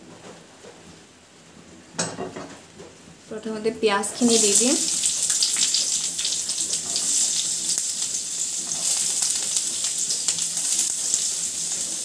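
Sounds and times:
onions sizzling in hot oil: 4.1 - 12.0.

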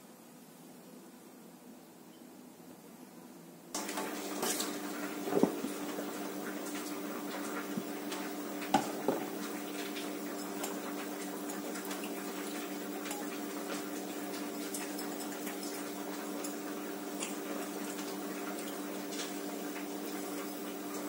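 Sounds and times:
tap water running into pot: 3.8 - 21.0
pot knocking against sink: 5.3 - 5.8, 8.7 - 9.4.

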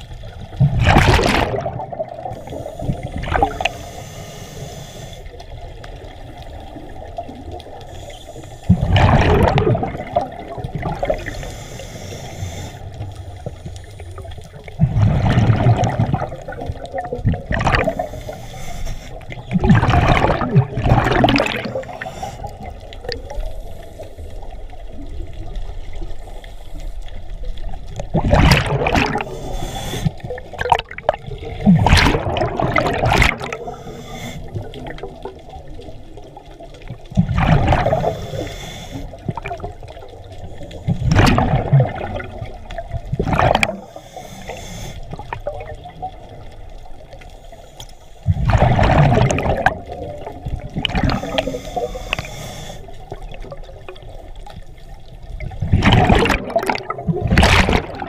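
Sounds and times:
exhaled bubbles gushing: 0.0 - 3.8, 5.5 - 11.6, 12.9 - 18.5, 19.1 - 23.6, 27.4 - 44.0, 45.1 - 47.1, 48.2 - 58.0
regulator inhalation: 2.4 - 5.3, 11.2 - 12.9, 17.9 - 19.4, 29.2 - 30.4, 33.5 - 34.7, 37.9 - 39.2, 43.8 - 45.2, 51.1 - 53.0.

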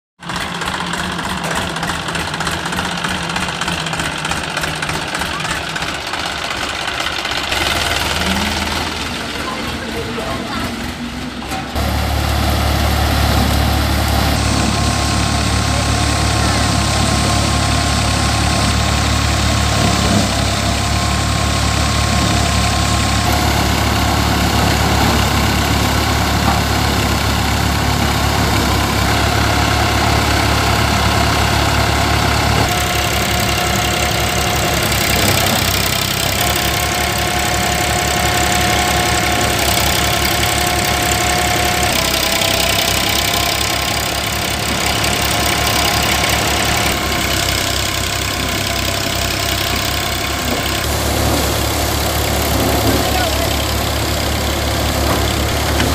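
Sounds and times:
tractor diesel engine drone: 0.2 - 55.9
thresher drum whine: 11.8 - 55.9.

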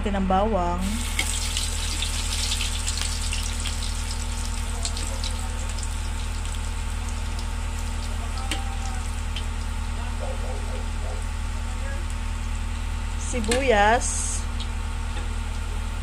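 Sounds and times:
constant low hum: 0.0 - 16.0
garlic sizzling in hot oil: 0.8 - 10.0.

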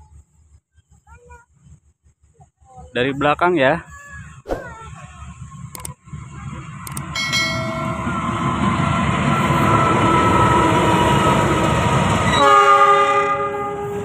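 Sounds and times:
train rumble: 4.0 - 14.0
locomotive horn: 12.2 - 14.0.

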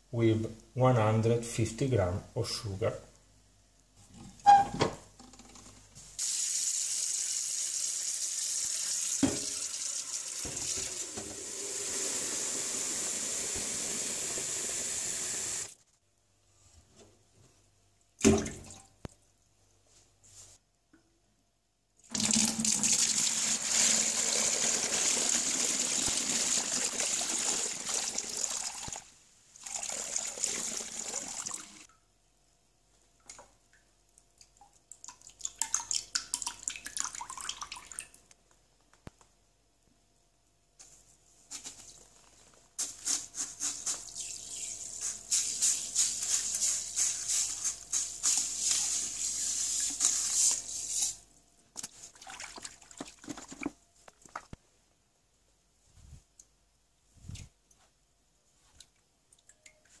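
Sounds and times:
liquid pouring into bucket: 22.1 - 29.0, 29.6 - 31.8, 52.1 - 53.7
liquid splashing while stirred: 51.8 - 54.5.

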